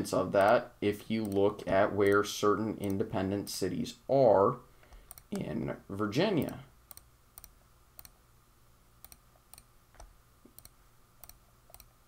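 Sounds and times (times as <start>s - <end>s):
faint computer mouse clicks: 9.0s - 11.9s.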